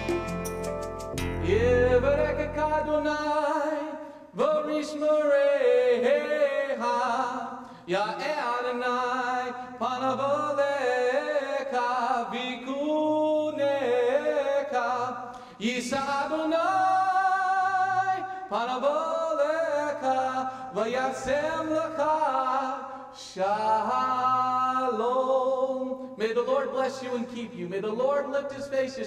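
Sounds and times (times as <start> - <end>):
person singing slowly: 1.3 - 8.1.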